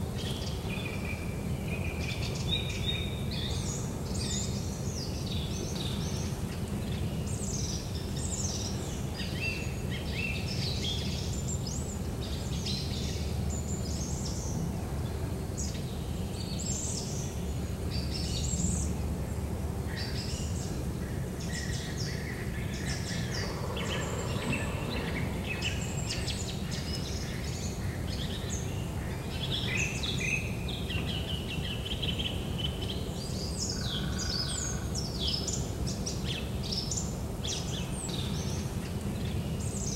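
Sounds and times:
songbirds chirping: 0.0 - 39.9
low background rumble: 2.8 - 31.6.

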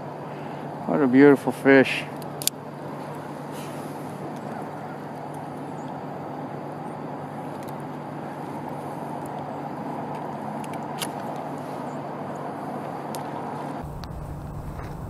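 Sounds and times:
low rushing noise: 13.7 - 15.0.

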